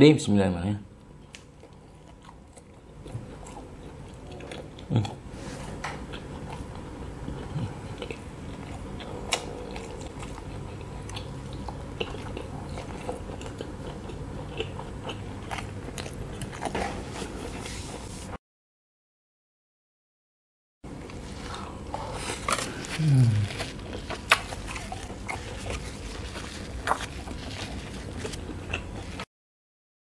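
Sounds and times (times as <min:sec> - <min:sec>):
chewing sausage: 0:01.0 - 0:18.0, 0:21.0 - 0:29.3.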